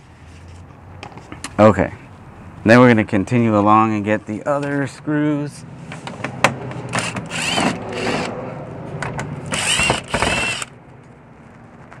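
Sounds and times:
cordless drill motor whine: 0:06.9 - 0:08.3, 0:09.5 - 0:10.7.

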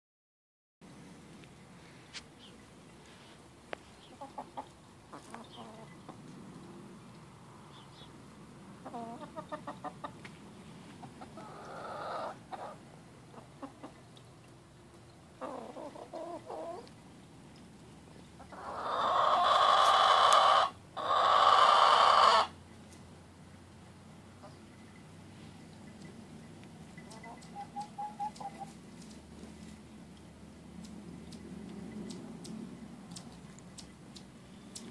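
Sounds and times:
hen clucking: 0:04.0 - 0:06.2, 0:08.8 - 0:10.3, 0:11.0 - 0:14.2, 0:15.3 - 0:17.0, 0:18.4 - 0:22.6, 0:26.9 - 0:28.8
hen harsh growling calls: 0:18.5 - 0:22.6.

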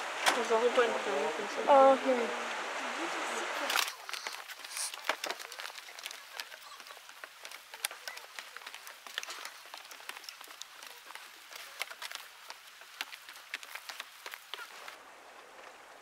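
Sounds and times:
faint steady hiss: 0:00.0 - 0:16.0
footsteps on wooden stairs: 0:04.2 - 0:15.0.

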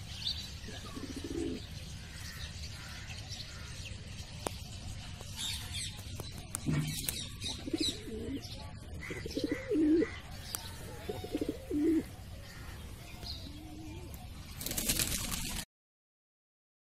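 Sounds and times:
pigeon cooing: 0:00.7 - 0:01.6, 0:06.6 - 0:12.3, 0:13.4 - 0:15.1.

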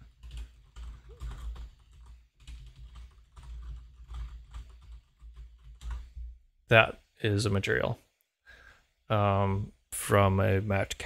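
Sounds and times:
computer keyboard typing: 0:00.0 - 0:06.2.

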